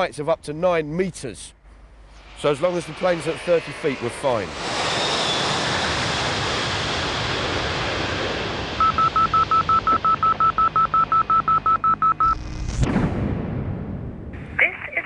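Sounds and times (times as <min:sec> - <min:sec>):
aircraft noise: 0:01.8 - 0:12.6
high electronic beeps: 0:08.8 - 0:12.5.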